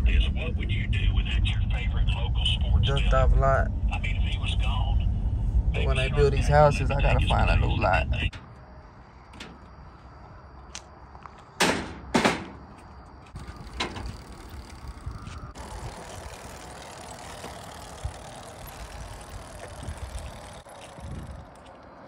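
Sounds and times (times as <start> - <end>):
loud metal clanks: 11.6 - 12.7.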